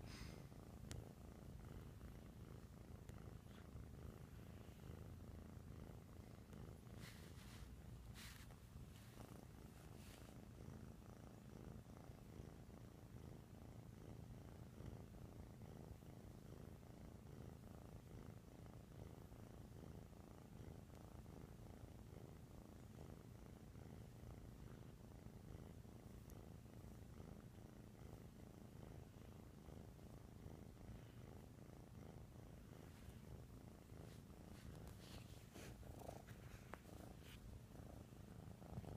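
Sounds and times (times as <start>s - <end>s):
kitten purring: 0.0s - 38.9s
faint clicks: 0.8s - 1.0s.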